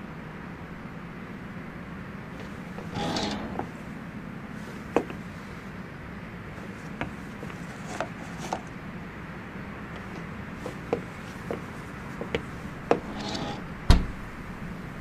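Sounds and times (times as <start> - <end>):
steady background noise: 0.0 - 15.0
glass door and sign clicking: 2.4 - 4.0, 10.0 - 14.9
door thumping shut: 12.9 - 14.3.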